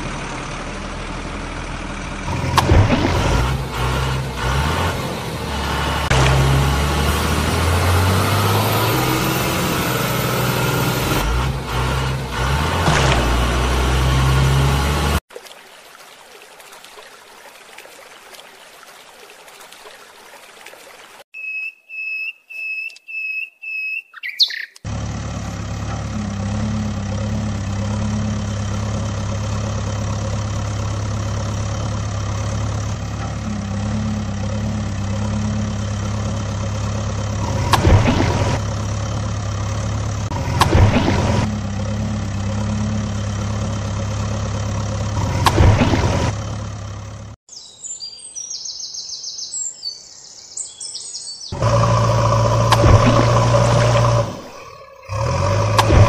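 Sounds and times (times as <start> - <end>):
diesel engine running: 0.0 - 15.2, 24.8 - 47.4, 51.6 - 56.0.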